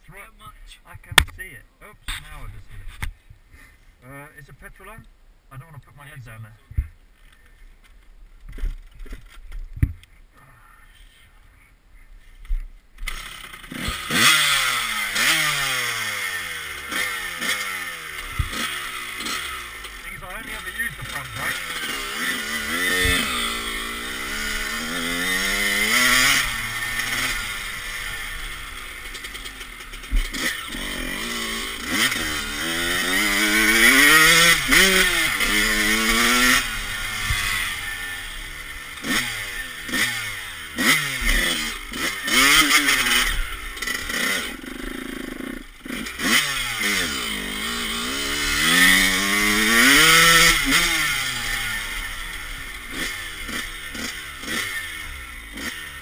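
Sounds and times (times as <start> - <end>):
dirt bike engine revving: 13.0 - 56.0.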